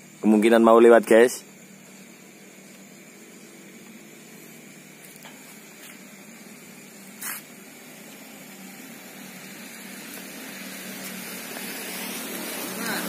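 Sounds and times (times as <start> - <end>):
motorcycle engine humming: 0.0 - 13.0
short hiss: 6.8 - 8.1.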